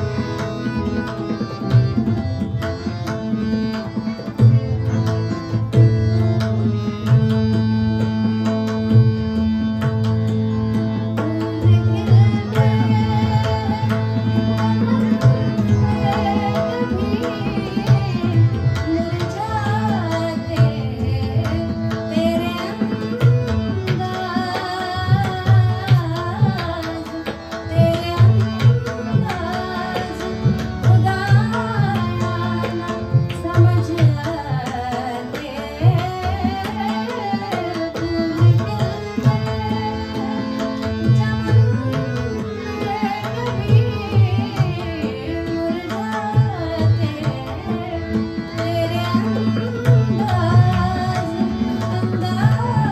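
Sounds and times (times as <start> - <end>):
ornamented melody: 0.0 - 34.3
sustained keyboard notes: 0.0 - 52.9
tabla playing a rhythm: 0.0 - 52.9.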